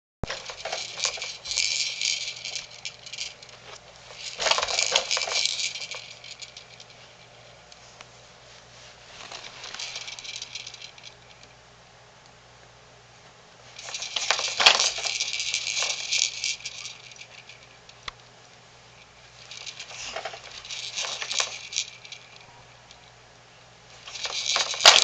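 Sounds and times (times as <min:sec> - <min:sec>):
toy beads rattling and jingling: 0:00.2 - 0:07.3, 0:09.4 - 0:11.4, 0:13.8 - 0:17.8, 0:19.4 - 0:22.5, 0:24.0 - 0:25.0.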